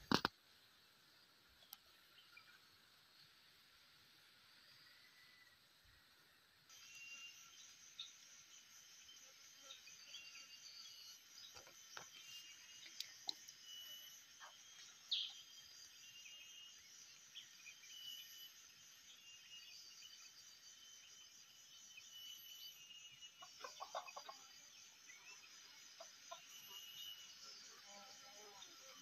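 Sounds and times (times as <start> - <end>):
junglefowl clucking: 23.4 - 24.4.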